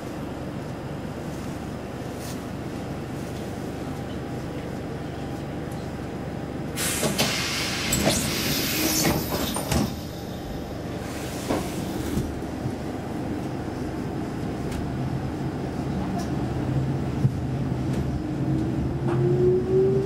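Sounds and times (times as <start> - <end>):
railcar low hum: 0.0 - 20.0
air hissing from doors: 6.8 - 10.2.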